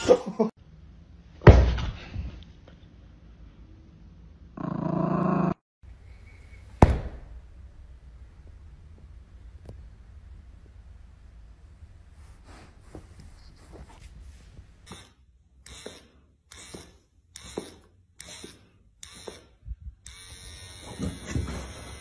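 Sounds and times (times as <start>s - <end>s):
electric hair clippers buzzing: 20.1s - 22.0s.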